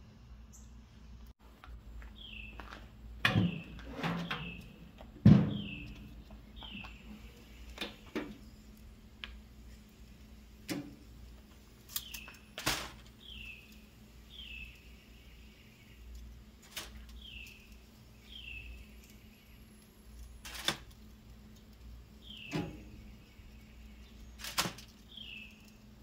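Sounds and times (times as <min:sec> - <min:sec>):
sharp knocks and clatters: 0:02.7 - 0:07.0.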